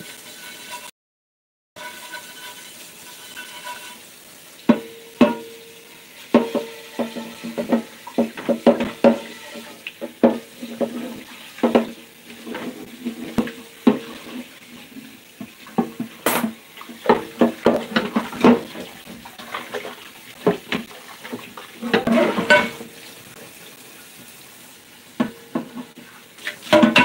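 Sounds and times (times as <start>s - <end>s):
running tap water: 0.0s - 0.9s, 1.8s - 27.0s
dishes and cups clinking: 21.8s - 22.9s, 26.6s - 27.0s.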